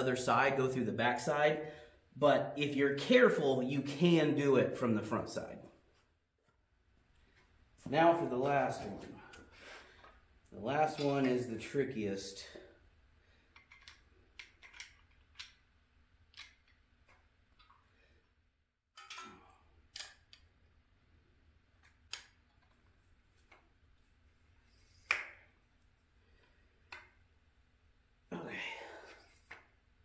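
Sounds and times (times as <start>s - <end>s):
metallic clicks and clinks: 13.6s - 15.6s.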